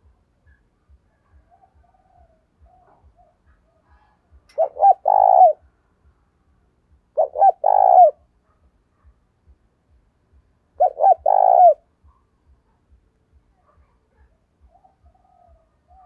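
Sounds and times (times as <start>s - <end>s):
dove cooing: 1.1s - 5.7s, 7.2s - 8.3s, 10.8s - 11.9s, 14.2s - 16.0s.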